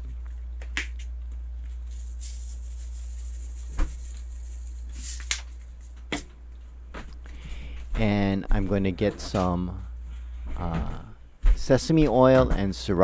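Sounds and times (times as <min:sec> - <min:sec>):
salt pattering from shaker: 0:01.6 - 0:06.0.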